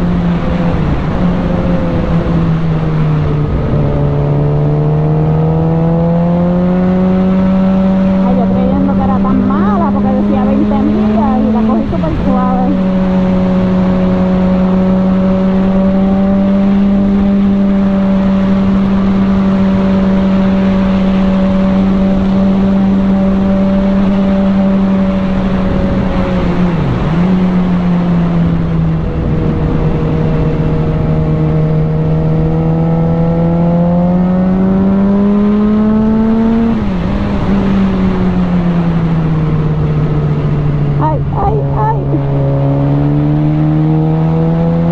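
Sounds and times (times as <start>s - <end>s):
wind rush on microphone: 0.0s - 4.8s, 16.5s - 32.8s
motorcycle engine running: 0.0s - 44.9s.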